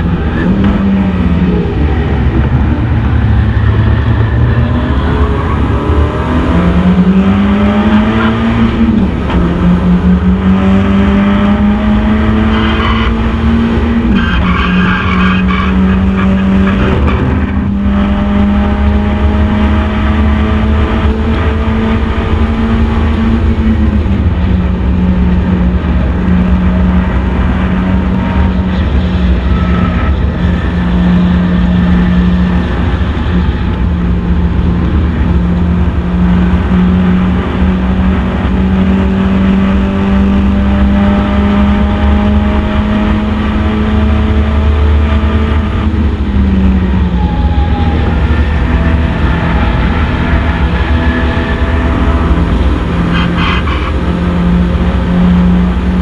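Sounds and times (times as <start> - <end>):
race car engine revving: 0.0 - 56.0
tyres squealing: 14.1 - 17.5.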